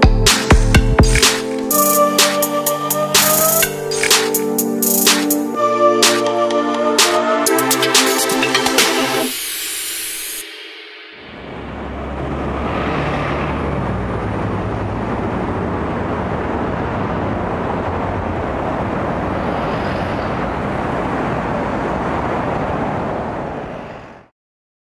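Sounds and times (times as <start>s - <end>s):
buses and cars going by: 0.3s - 9.9s, 11.2s - 24.3s
low engine hum: 11.2s - 23.8s.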